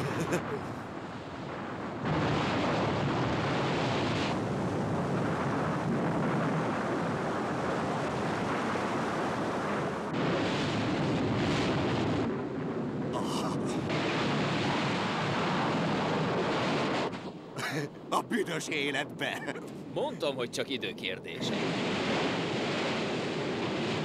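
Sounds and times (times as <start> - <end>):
floodwater roaring: 0.0 - 18.2.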